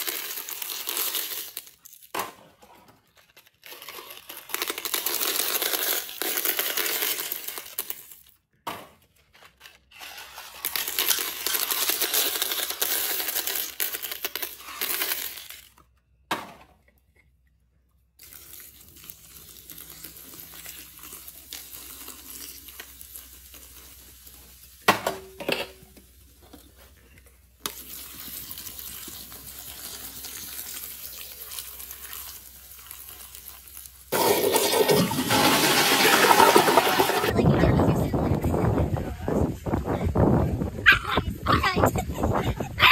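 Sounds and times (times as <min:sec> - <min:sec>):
hard candies rattling down: 0:00.0 - 0:02.2, 0:03.0 - 0:08.4, 0:09.5 - 0:16.0, 0:18.2 - 0:24.8, 0:27.4 - 0:37.4
soda splashing and fizzing: 0:18.2 - 0:24.9, 0:27.6 - 0:37.4
toilet flushing: 0:34.1 - 0:37.3.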